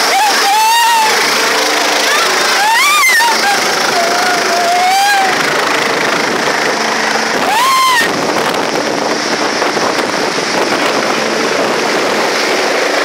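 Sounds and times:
person crying out high: 0:00.0 - 0:01.2, 0:02.1 - 0:05.4, 0:07.4 - 0:08.2
engine running: 0:00.0 - 0:13.0.

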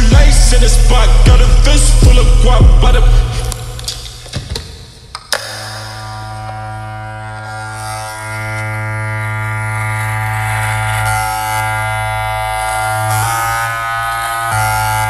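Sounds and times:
low bass note: 0:00.0 - 0:03.8
buzzing synth chord: 0:05.1 - 0:15.0.

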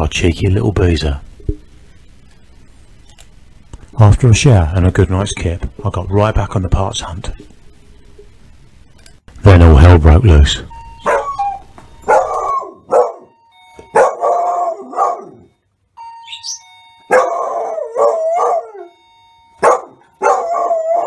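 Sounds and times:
electronic doorbell tone: 0:10.5 - 0:21.0
dog barking and baying: 0:11.0 - 0:15.5, 0:17.1 - 0:19.0, 0:19.6 - 0:21.0.

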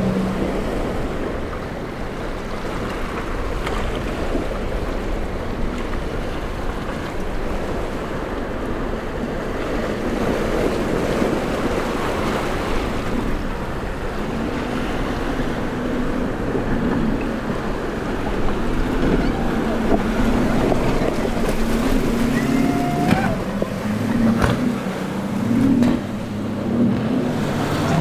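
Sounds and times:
outboard boat engine running: 0:00.0 - 0:28.0
wind on microphone: 0:00.0 - 0:28.0
surf breaking: 0:09.2 - 0:28.0.

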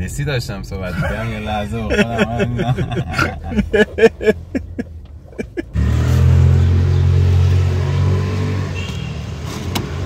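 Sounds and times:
men laughing: 0:00.9 - 0:05.8.

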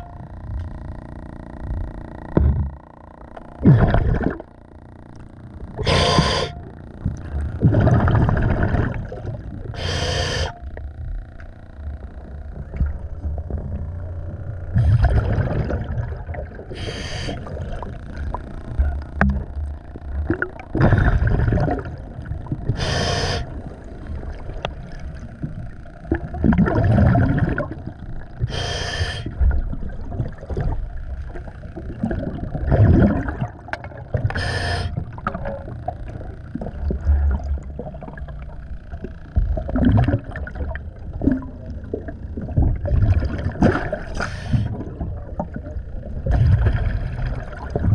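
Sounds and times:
bubbly exhalations underwater: 0:03.6 - 0:04.5, 0:07.5 - 0:10.6, 0:14.7 - 0:19.6, 0:20.2 - 0:24.6, 0:26.1 - 0:38.4, 0:39.5 - 0:47.9
sharp regulator inhalations: 0:05.8 - 0:06.6, 0:09.8 - 0:10.7, 0:16.7 - 0:17.6, 0:22.8 - 0:23.6, 0:28.5 - 0:29.4, 0:34.3 - 0:35.0, 0:44.1 - 0:44.8.

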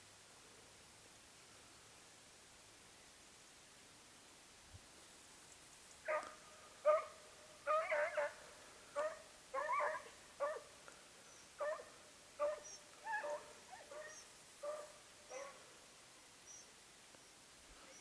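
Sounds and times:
hounds yelping barks: 0:06.1 - 0:08.4, 0:09.0 - 0:10.7, 0:11.6 - 0:15.6.

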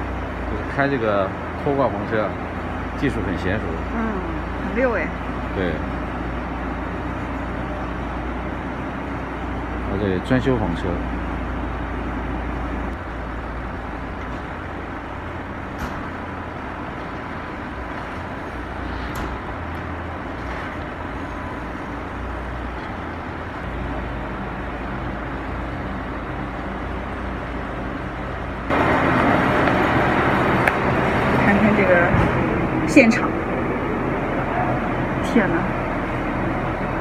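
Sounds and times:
car engine humming: 0:00.0 - 0:37.0
loud rough noise: 0:00.0 - 0:37.0.

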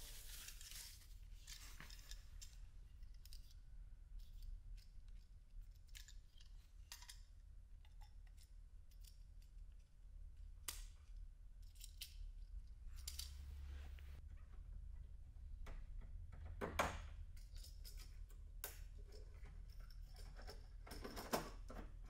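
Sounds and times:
paper unwrapping: 0:00.0 - 0:02.1
low steady hum: 0:00.0 - 0:20.7
plastic parts clicking and rustling: 0:00.2 - 0:09.8, 0:10.6 - 0:13.5, 0:17.3 - 0:22.0.

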